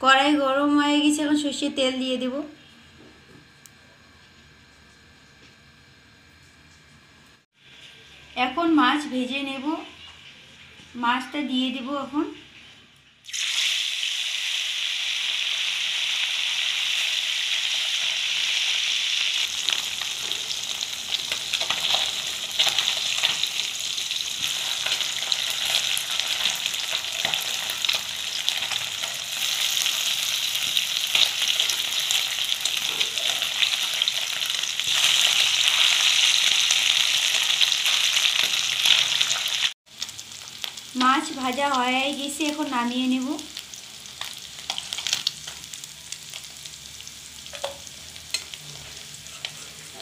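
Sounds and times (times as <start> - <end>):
fish sizzling in hot oil: 13.2 - 50.0
spatula scraping wok: 47.5 - 50.0.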